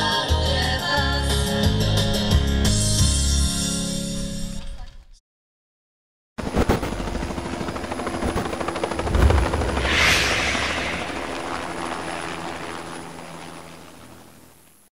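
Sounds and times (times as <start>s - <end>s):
rushing whoosh with flutter: 8.9s - 12.0s
low boom: 9.0s - 11.8s
bright swell: 9.0s - 11.9s.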